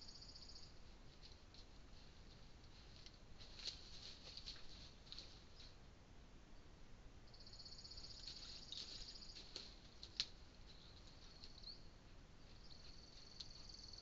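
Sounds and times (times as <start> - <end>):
high insect trill: 0.0 - 0.8, 7.3 - 9.5.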